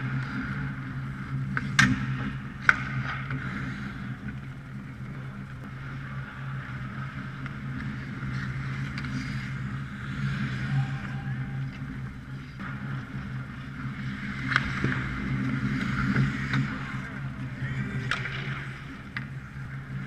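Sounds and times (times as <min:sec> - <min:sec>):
skates scraping on ice: 0:00.0 - 0:20.0
steady low hum: 0:00.0 - 0:20.0
stick hitting puck: 0:01.5 - 0:03.6, 0:14.4 - 0:16.9, 0:17.8 - 0:19.3.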